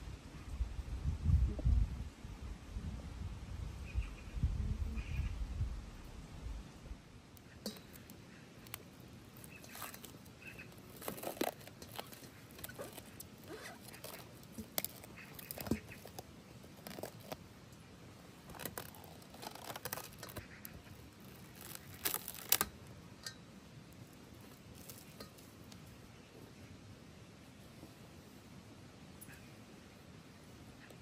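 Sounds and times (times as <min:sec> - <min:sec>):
cling film crinkling: 0:07.4 - 0:22.9, 0:24.0 - 0:25.8.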